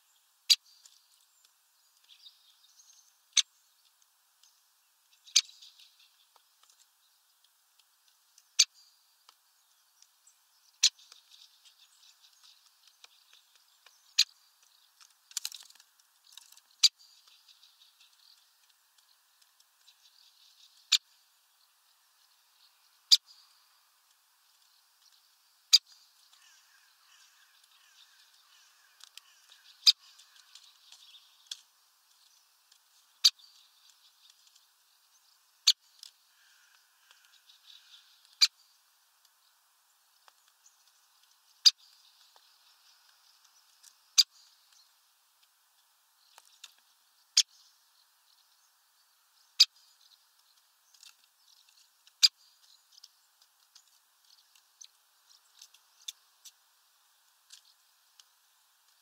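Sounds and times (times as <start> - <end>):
faint rustling of seeds: 0.0 - 59.0
woodpecker clicking at feeder: 35.6 - 38.6.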